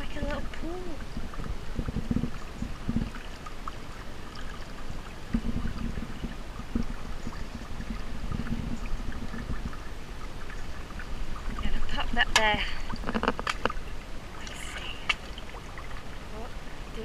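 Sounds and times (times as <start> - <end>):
dull low thumps: 0.0 - 3.7, 4.9 - 10.1
brook water trickling and splashing: 0.0 - 17.0.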